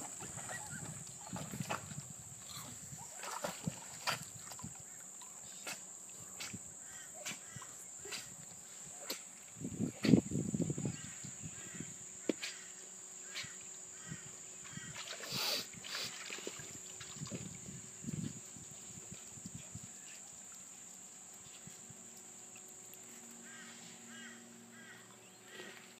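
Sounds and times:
high insect drone: 0.0 - 26.0
short hiss: 15.2 - 16.2.

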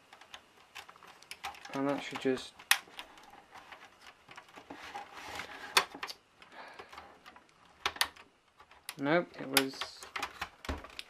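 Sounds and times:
plastic scraping and rubbing: 0.0 - 6.2.

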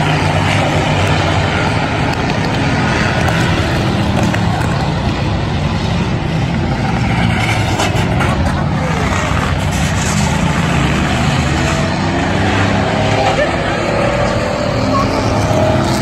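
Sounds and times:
race car engines roaring: 0.0 - 16.0.

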